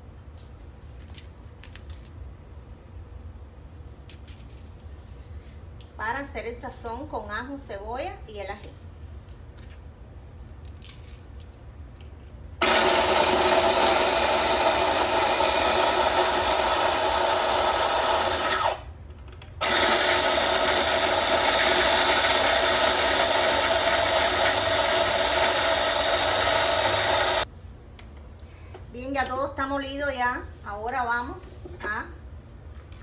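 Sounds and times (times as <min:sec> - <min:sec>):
electric food chopper running: 0:12.6 - 0:18.9, 0:19.6 - 0:27.5.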